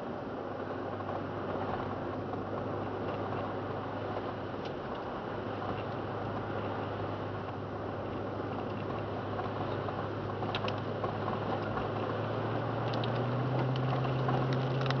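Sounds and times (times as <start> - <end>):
car engine hum: 0.0 - 15.0
road noise: 0.0 - 15.0.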